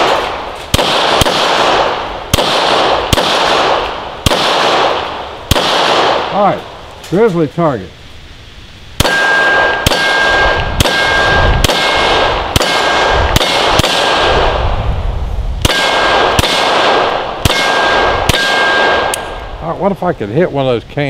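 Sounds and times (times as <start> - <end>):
pistol shots: 0.0 - 6.4, 9.0 - 14.6, 15.6 - 19.4
steel target ringing: 9.0 - 13.8, 17.4 - 19.4.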